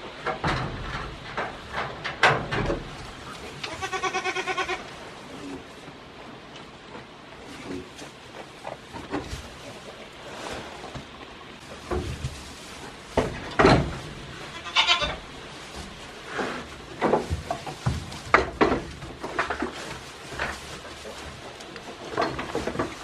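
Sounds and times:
young goats bleating: 3.6 - 4.9, 14.4 - 15.2.

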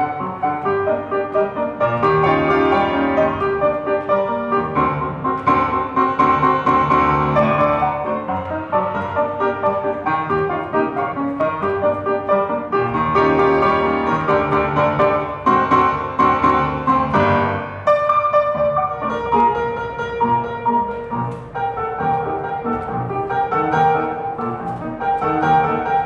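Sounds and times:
solo piano music: 0.0 - 26.0.

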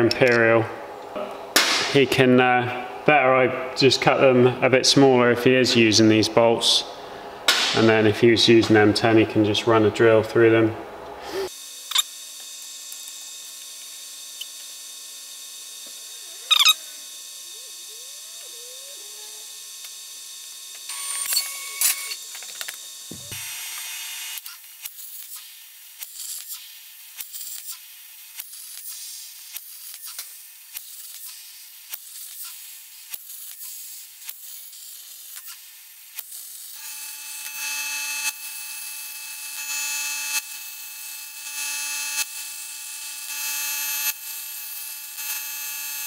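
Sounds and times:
workshop hum: 0.0 - 46.0
sharp clicks and squeaks: 16.5 - 16.8.

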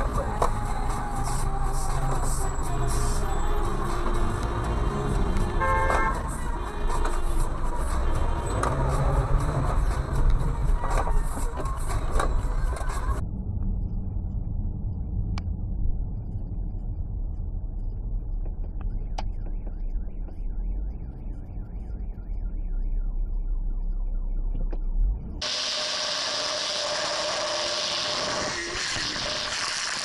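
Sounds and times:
hissing road noise: 0.0 - 13.2, 25.4 - 30.0
car driving rumble: 0.0 - 30.0.

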